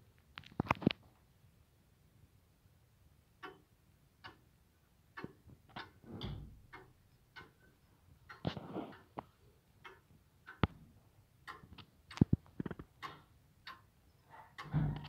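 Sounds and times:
clock ticking faintly: 0:03.3 - 0:15.0.

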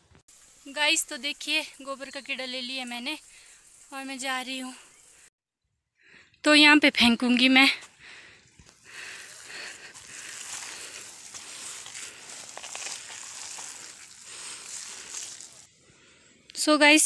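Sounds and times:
dung tipped out rustling: 0:10.1 - 0:15.7.

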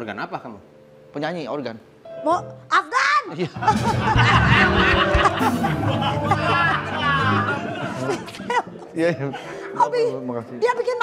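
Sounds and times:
background music: 0:00.0 - 0:11.0
audience laughing: 0:03.6 - 0:09.4.

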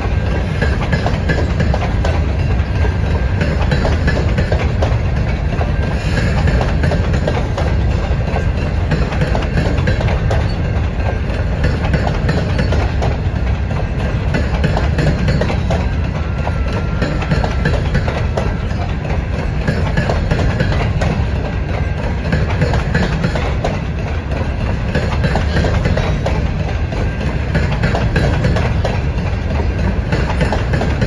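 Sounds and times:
freight train wheels rumbling: 0:00.0 - 0:31.0.

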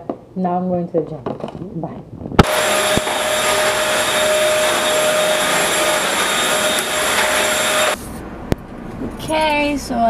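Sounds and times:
electric hand dryer running: 0:02.4 - 0:08.0.

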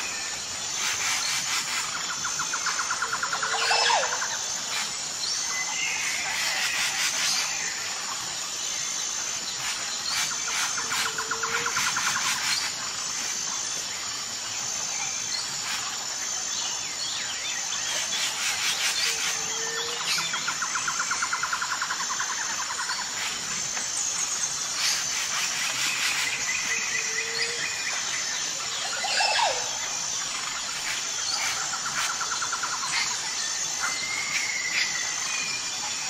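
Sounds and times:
pulsing insect chirring: 0:00.0 - 0:36.0
rapid trilling bird songs: 0:00.0 - 0:36.0.

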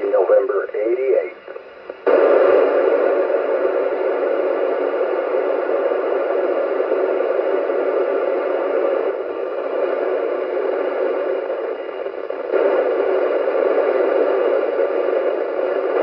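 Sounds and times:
radio receiver static hiss: 0:00.0 - 0:16.0.

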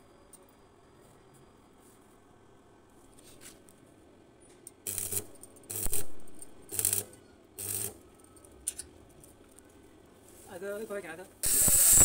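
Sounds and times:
arc welder crackling hiss: 0:04.8 - 0:08.0, 0:11.4 - 0:12.0.

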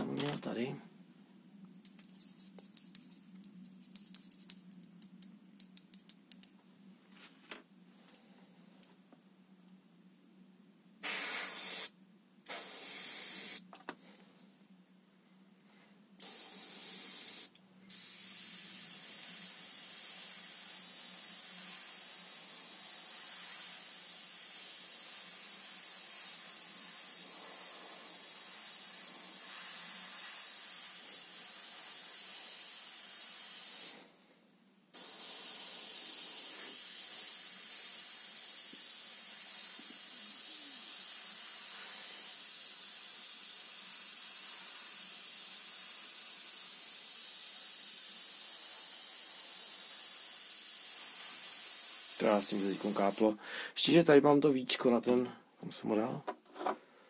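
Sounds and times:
airbrush spraying hiss: 0:11.0 - 0:13.8, 0:16.2 - 0:34.1, 0:34.9 - 0:53.4.

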